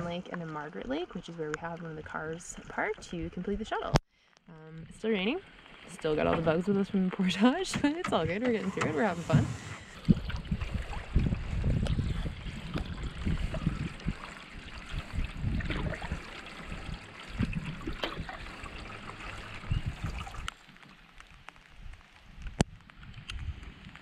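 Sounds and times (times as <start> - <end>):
low rumbles: 0.0 - 20.5
water lapping: 4.9 - 20.7
water splashing along hull: 5.0 - 21.6
paddle strokes: 5.5 - 20.8
sharp water drips: 9.9 - 22.2.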